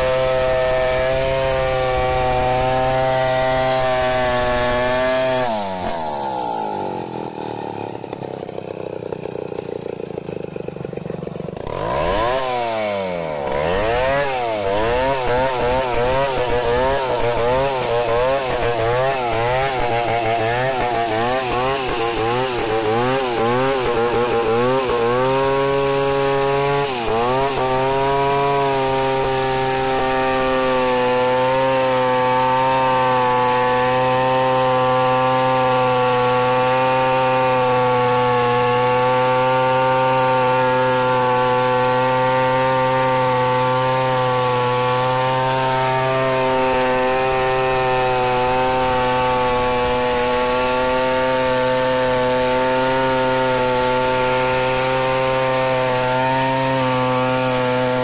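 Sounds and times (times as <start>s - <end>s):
chainsaw cutting wood: 0.0s - 58.0s.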